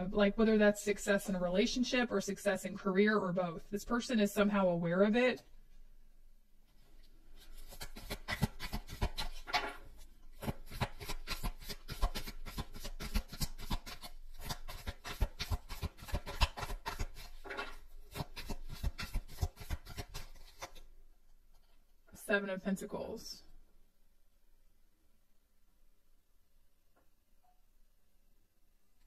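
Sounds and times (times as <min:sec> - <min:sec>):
cards being shuffled: 0:07.4 - 0:09.8, 0:10.4 - 0:20.9.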